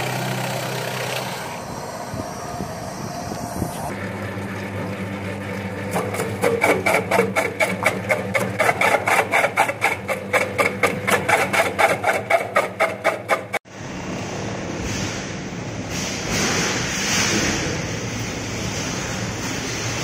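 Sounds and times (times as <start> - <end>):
blades cutting potato: 5.9 - 13.6.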